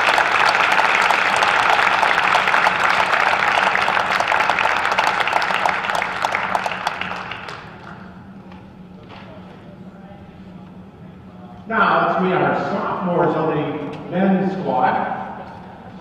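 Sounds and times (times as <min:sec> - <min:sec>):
crowd applauding: 0:00.0 - 0:08.2.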